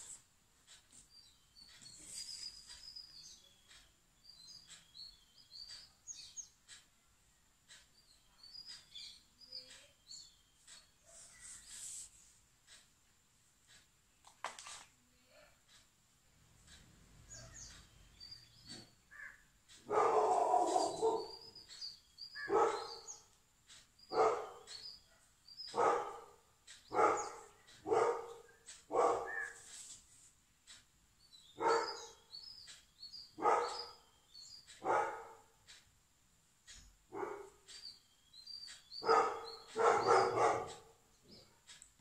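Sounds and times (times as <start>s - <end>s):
small birds chirping: 0.0s - 42.0s
dog barking: 19.8s - 21.4s, 22.4s - 23.2s, 24.1s - 29.6s, 31.6s - 32.2s, 33.4s - 34.0s, 34.8s - 35.6s, 37.1s - 37.7s, 39.0s - 41.0s.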